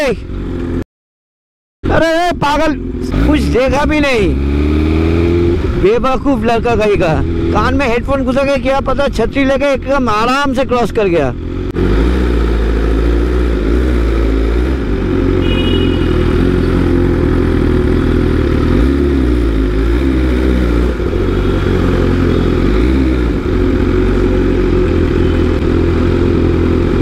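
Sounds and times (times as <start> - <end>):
motorcycle engine running at low revs: 11.4 - 27.0.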